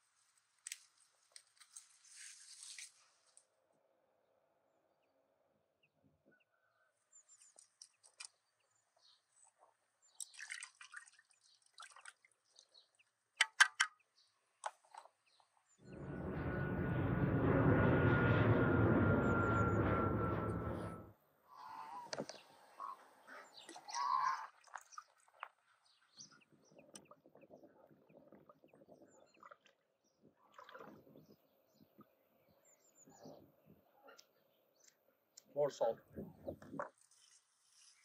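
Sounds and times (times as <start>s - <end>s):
faint ringing tone: 15.8s - 21.1s.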